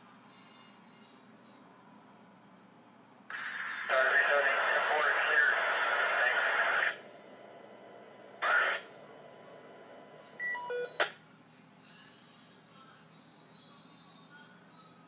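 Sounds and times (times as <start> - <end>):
radio-like noise: 3.3 - 11.2.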